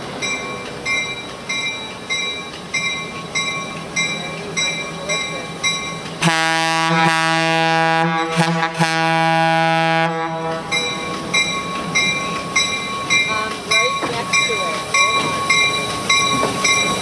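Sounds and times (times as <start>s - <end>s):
locomotive bell ringing: 0.0s - 8.3s, 10.0s - 17.0s
locomotive air horn blast: 6.2s - 10.7s.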